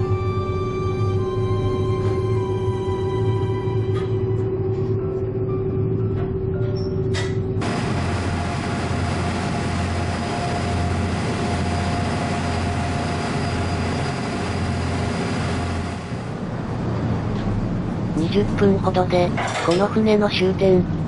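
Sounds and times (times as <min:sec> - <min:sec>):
ferry engine drone: 0:00.0 - 0:21.0
water rushing along hull: 0:07.6 - 0:16.5.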